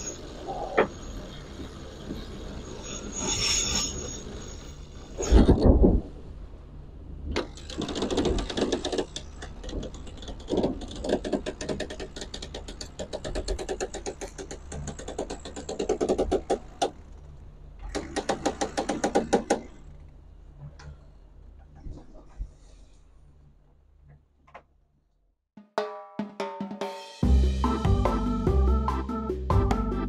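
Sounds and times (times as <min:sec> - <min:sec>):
rapid mechanical clicking: 0:07.3 - 0:21.0.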